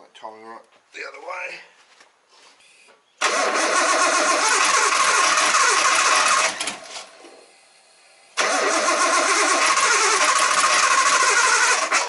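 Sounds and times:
car engine cranking and running: 3.2 - 6.9, 8.4 - 12.0.

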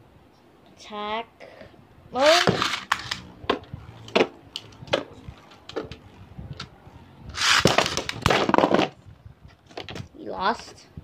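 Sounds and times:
spinning tops clashing and rattling: 2.2 - 3.4.

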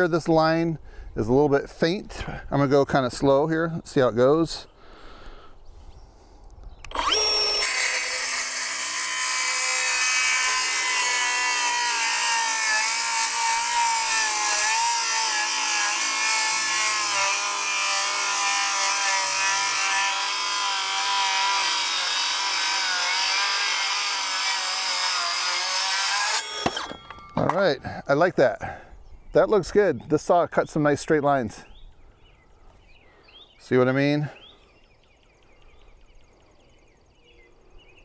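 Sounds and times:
circular saw cutting wood: 6.9 - 27.6.

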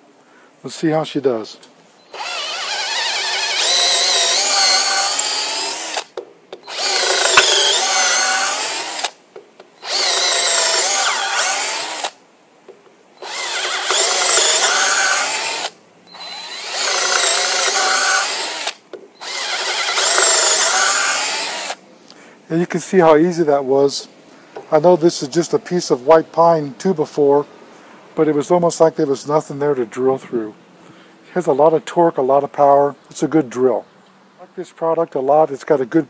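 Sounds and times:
cordless drill whining: 2.1 - 9.2, 9.8 - 12.2, 13.2 - 21.8.

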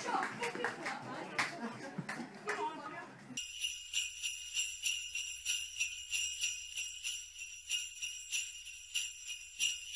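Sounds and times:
sleigh bells jingling: 3.4 - 9.9.

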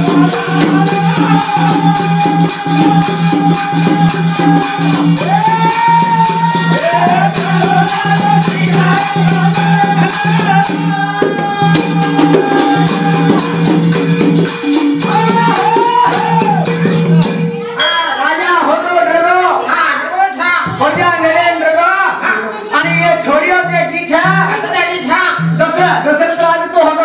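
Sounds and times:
person singing: 0.0 - 16.9
tambourines shaken rhythmically: 0.0 - 17.7.

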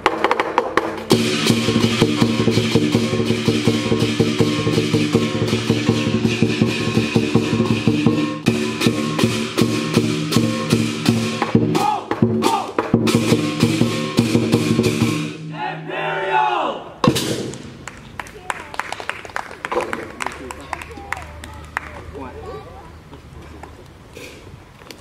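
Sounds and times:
drum beaten rapidly: 0.0 - 15.5, 17.0 - 17.5
cymbals crashing: 1.1 - 15.6.

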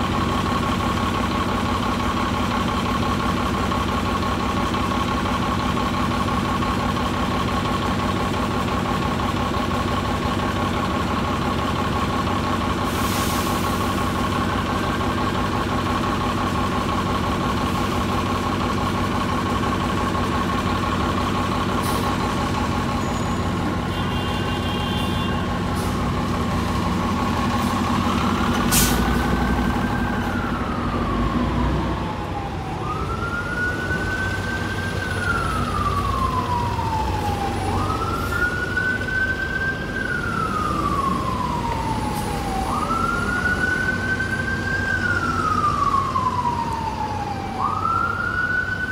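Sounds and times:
diesel buses idling: 0.0 - 48.9
siren wailing: 29.3 - 48.9.

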